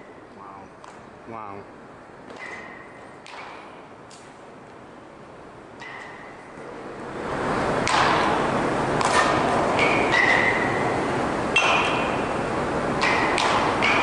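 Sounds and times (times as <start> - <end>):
baseball bats striking balls: 0.0 - 1.2, 2.2 - 4.9, 5.7 - 14.0.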